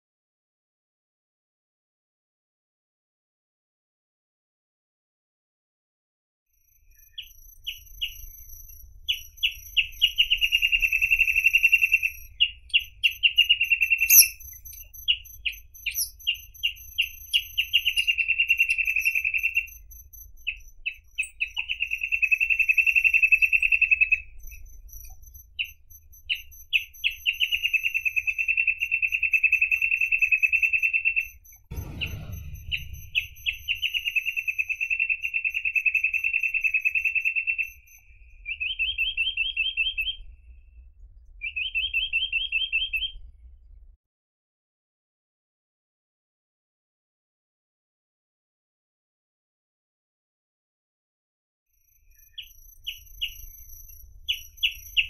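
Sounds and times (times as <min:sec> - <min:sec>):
bird singing trills: 0:06.9 - 0:40.4, 0:41.4 - 0:43.2, 0:52.1 - 0:55.0.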